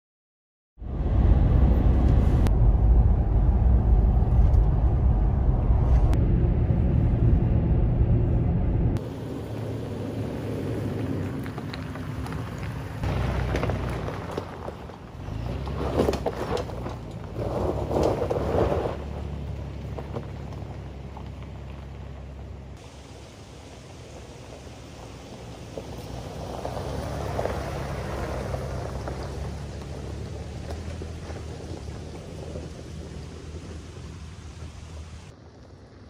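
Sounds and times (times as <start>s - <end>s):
vehicle road and wind rumble: 0.8s - 36.0s
tyres crunching over gravel: 9.0s - 36.0s.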